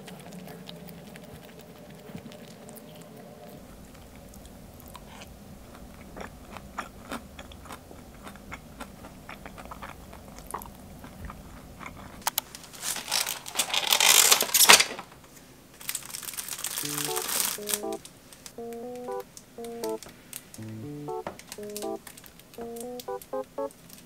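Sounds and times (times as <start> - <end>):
chewing: 0.0 - 12.6.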